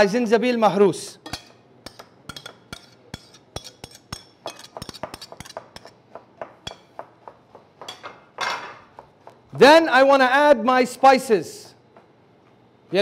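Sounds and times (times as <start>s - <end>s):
metal spoon clinking on dishes: 1.2s - 6.0s, 6.6s - 6.9s, 7.9s - 8.8s.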